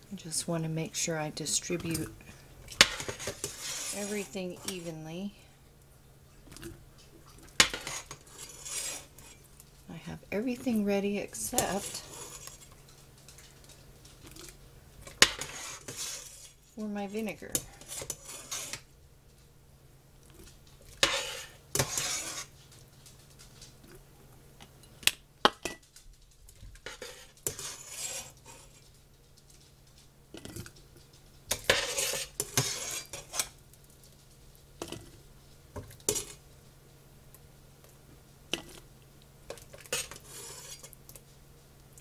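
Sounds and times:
utensil scraping in a pot: 0:00.2 - 0:05.1, 0:07.4 - 0:18.9, 0:20.3 - 0:22.8, 0:26.8 - 0:28.9, 0:31.5 - 0:33.6, 0:39.5 - 0:41.0.

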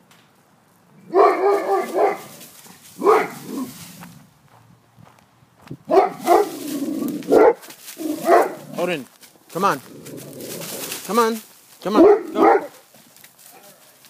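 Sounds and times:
large dog barking: 0:01.0 - 0:03.7, 0:05.9 - 0:08.8, 0:11.9 - 0:12.8.

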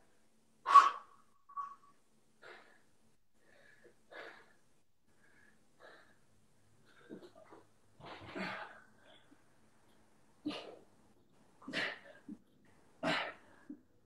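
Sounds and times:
man breathing hard: 0:02.4 - 0:07.0.

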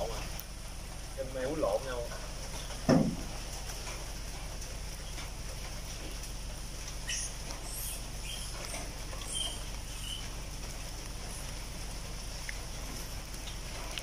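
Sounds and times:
light rain hissing: 0:00.0 - 0:14.0
macaques squeaking: 0:07.0 - 0:10.4.

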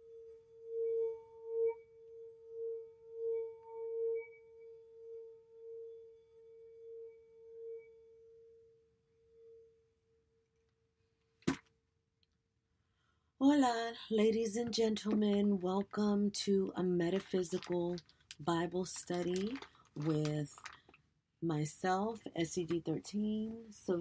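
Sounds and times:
singing bowl ringing: 0:00.0 - 0:10.3.

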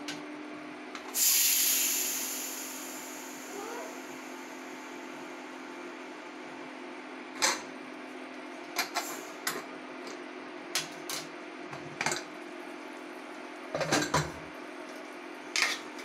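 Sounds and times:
low hum: 0:01.2 - 0:06.5.

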